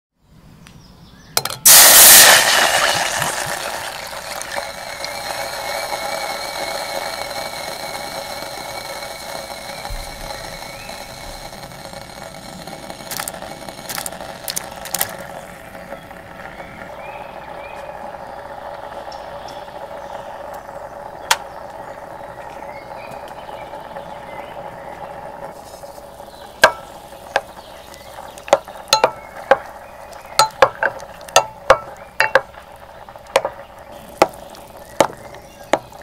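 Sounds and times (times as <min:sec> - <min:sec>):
wine sizzling in hot saucepan: 0:01.6 - 0:36.0
sharp clicks and knocks: 0:04.4 - 0:16.8, 0:26.5 - 0:36.0.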